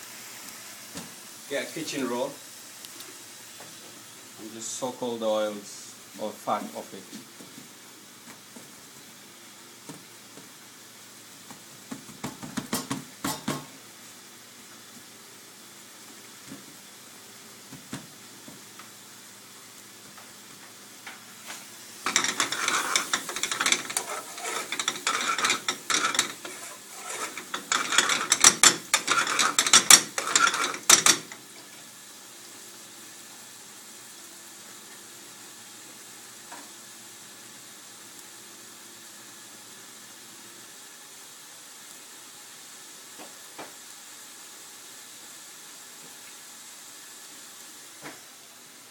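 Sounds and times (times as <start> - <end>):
low kitchen hum: 0.1 - 48.9
metal spoon scraping in a pan: 22.0 - 31.4.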